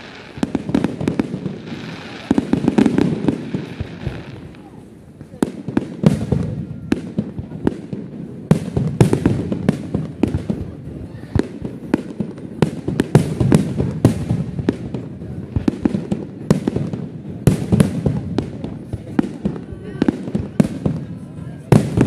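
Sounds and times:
fireworks bursting: 0.0 - 22.0.

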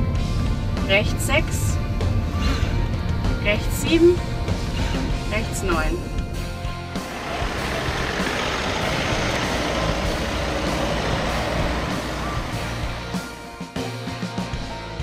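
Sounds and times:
van engine and tyre noise: 0.0 - 13.8.

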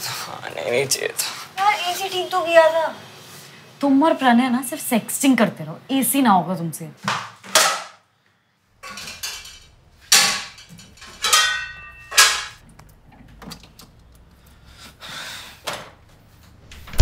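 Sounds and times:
containers knocking and clinking: 8.8 - 12.6.

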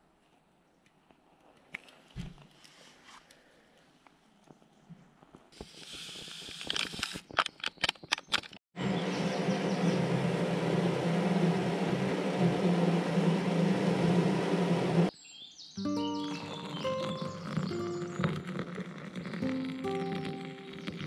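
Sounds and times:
pot of water hissing on stove: 5.6 - 7.0, 8.8 - 15.1, 16.3 - 21.0
sharp clicks and knocks: 6.6 - 8.6.

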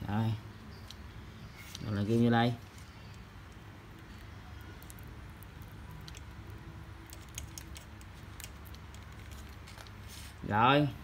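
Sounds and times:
low steady hum: 0.0 - 11.0
clicks and rustles of fingers: 2.7 - 10.0.

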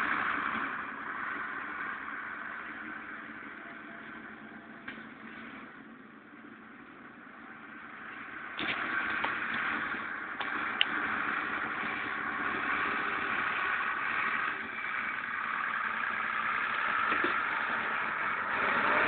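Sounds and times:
tractor diesel engine running: 0.0 - 19.0.

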